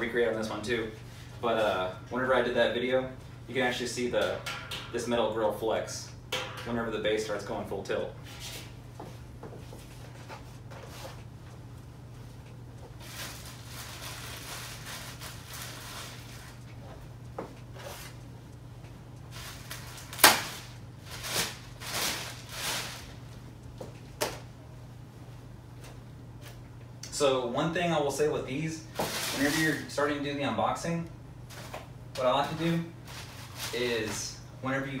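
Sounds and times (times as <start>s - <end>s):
rustling scrapes: 21.0s - 23.2s, 29.0s - 29.9s.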